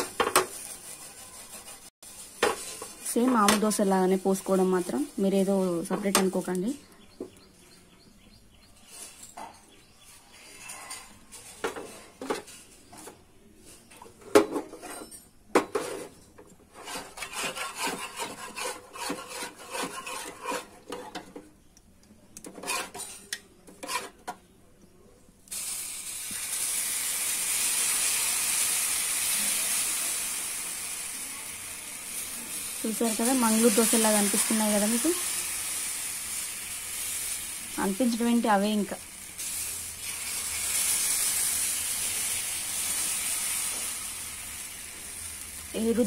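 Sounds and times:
batter sizzling on hot pan: 0.0s - 6.4s, 16.7s - 21.2s, 25.5s - 46.0s.

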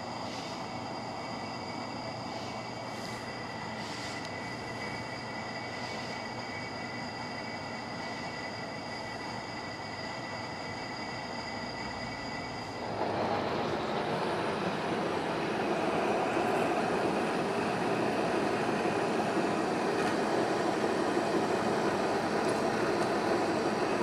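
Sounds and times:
thin high whine: 0.0s - 24.0s
lathe machine rumble: 6.4s - 24.0s.

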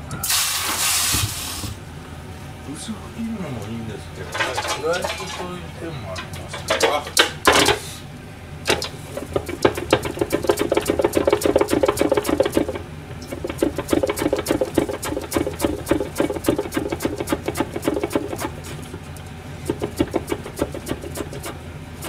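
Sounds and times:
carrot scraping over slicer blade: 16.3s - 21.6s.

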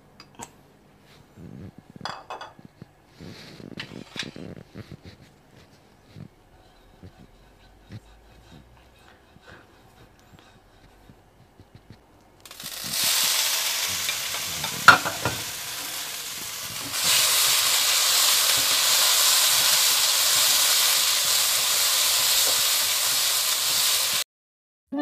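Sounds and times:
noodles sizzling in oil: 12.4s - 24.2s.

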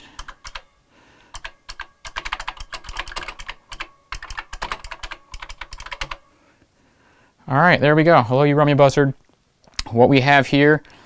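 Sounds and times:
mechanical keyboard typing: 0.0s - 0.7s, 1.3s - 6.2s.

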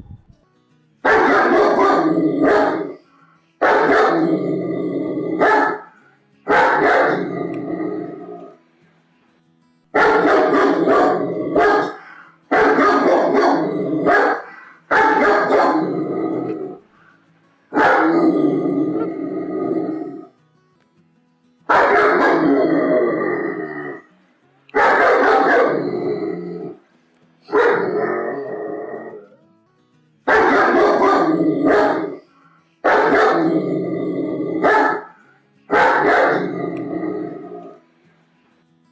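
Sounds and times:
dog barking: 1.0s - 3.0s, 3.6s - 4.3s, 5.4s - 5.9s, 6.5s - 7.4s, 10.0s - 16.8s, 17.7s - 18.4s, 21.7s - 22.7s, 24.8s - 26.0s, 27.5s - 28.3s, 30.3s - 32.2s, 32.8s - 33.6s, 34.6s - 36.6s.

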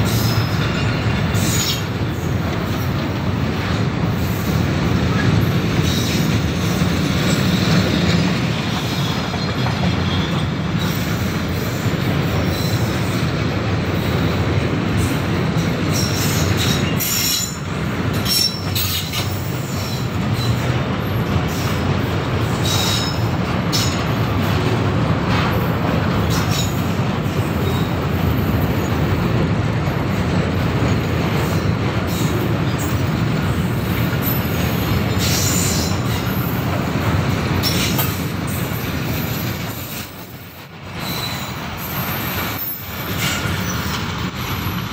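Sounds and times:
train wheels rumbling on rail: 0.0s - 44.9s
high wheel squeals: 4.2s - 11.8s, 18.2s - 20.7s, 22.6s - 24.0s, 37.6s - 44.8s.

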